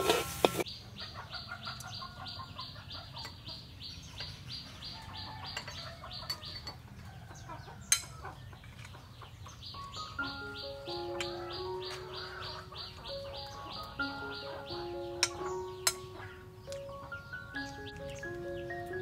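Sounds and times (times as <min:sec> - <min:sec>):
birds chirping: 0:00.0 - 0:19.0
chickens clucking: 0:00.0 - 0:19.0
rapid high chirp: 0:09.7 - 0:19.0.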